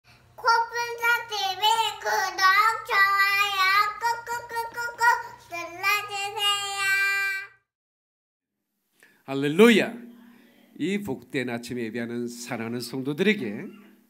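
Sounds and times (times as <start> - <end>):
girl singing in high voice: 0.4 - 7.6.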